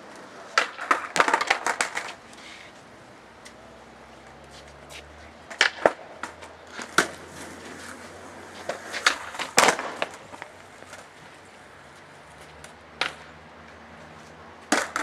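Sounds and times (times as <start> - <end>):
skateboard popping on concrete: 0.0 - 2.3, 5.5 - 11.2, 12.4 - 13.4, 14.7 - 15.0.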